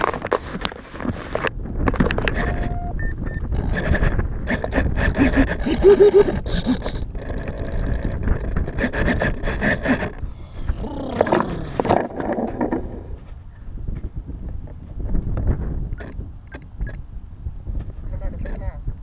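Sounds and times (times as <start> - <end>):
wind buffeting microphone: 0.0 - 19.0
short beeping tones: 2.4 - 3.5.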